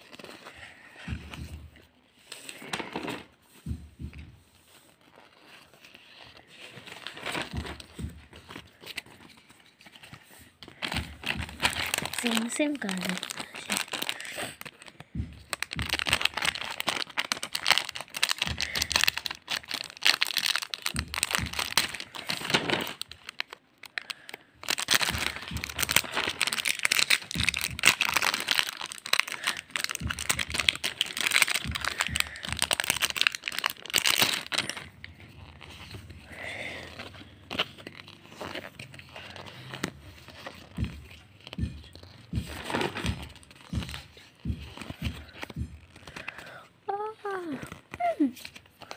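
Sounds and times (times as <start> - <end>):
foil wrapper crinkling: 8.5 - 46.6.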